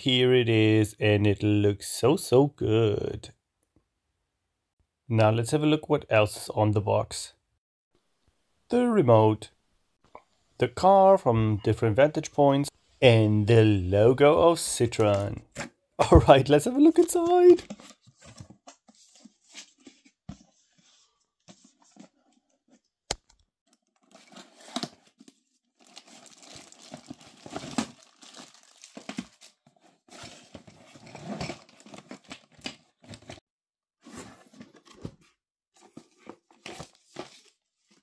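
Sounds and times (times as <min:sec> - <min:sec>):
plastic wrapping crinkling: 0:25.8 - 0:29.6
cardboard scraping and sliding: 0:34.0 - 0:37.6.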